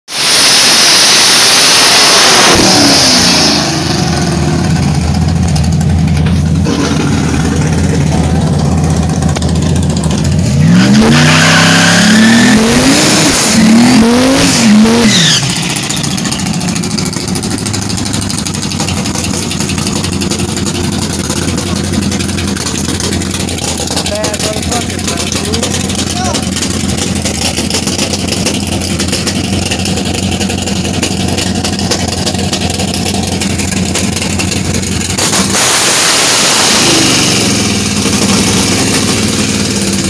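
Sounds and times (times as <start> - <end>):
loud hiss: 0.1 - 4.1, 35.2 - 39.3
car engine revving: 0.1 - 40.0.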